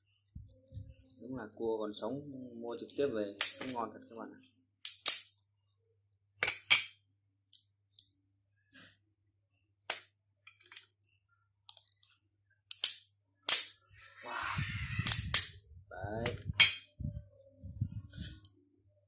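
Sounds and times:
crab shell cracking: 4.8 - 5.4, 12.7 - 13.8.

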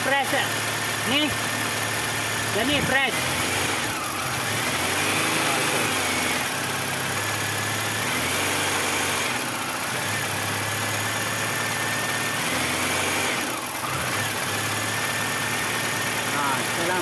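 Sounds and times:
car engine running at low speed: 0.0 - 17.0.

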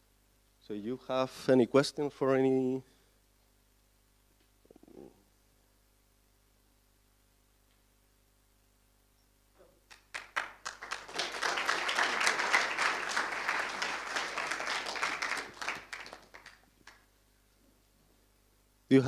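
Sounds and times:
audience applause: 9.9 - 17.1.

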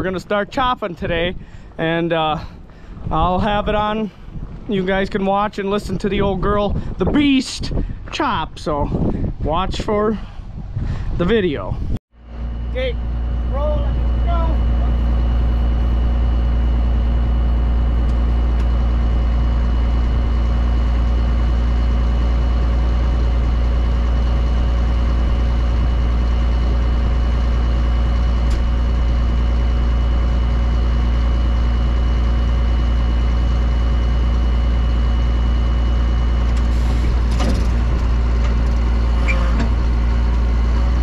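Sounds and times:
tractor diesel engine drone: 0.0 - 8.1, 12.2 - 41.0
machine whining tones: 12.2 - 41.0.

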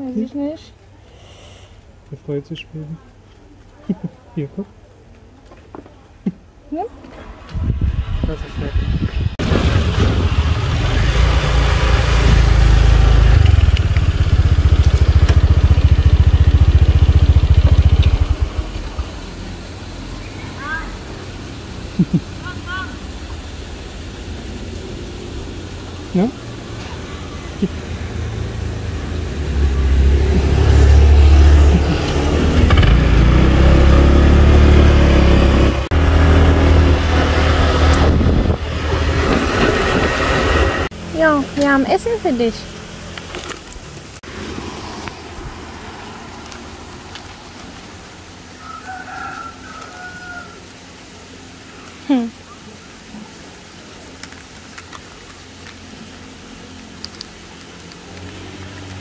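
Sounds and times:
motor scooter engine running: 9.6 - 19.5, 27.0 - 41.5
scooter engine idling: 12.5 - 19.4.

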